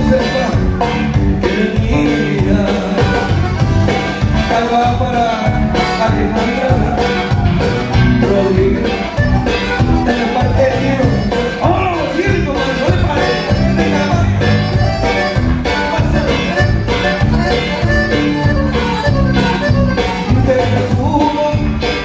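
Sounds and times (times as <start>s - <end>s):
man singing into microphone: 0.0s - 3.6s, 4.4s - 9.3s, 10.0s - 14.8s, 15.7s - 17.3s, 20.2s - 22.0s
bass guitar: 0.0s - 22.0s
button accordion: 0.0s - 22.0s
drums with steady beat: 0.0s - 22.0s.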